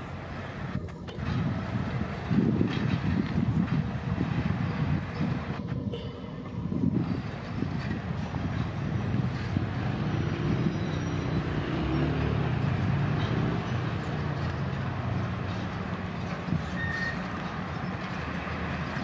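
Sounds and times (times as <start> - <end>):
steel wheels rumbling on rails: 0.0 - 19.0
high wheel squeak: 4.4 - 12.0, 15.5 - 19.0.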